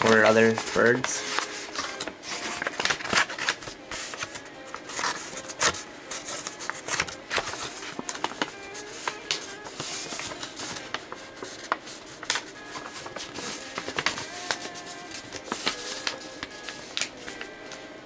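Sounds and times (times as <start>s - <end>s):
paper being folded and creased: 0.0s - 17.8s
paper snaps: 15.3s - 17.4s.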